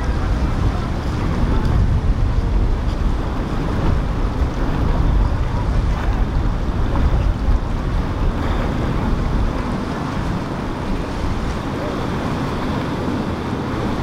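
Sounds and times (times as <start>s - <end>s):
low rumble: 0.0s - 11.9s
rush of bow wave and wake: 0.0s - 14.0s
wind buffeting microphone: 0.0s - 14.0s.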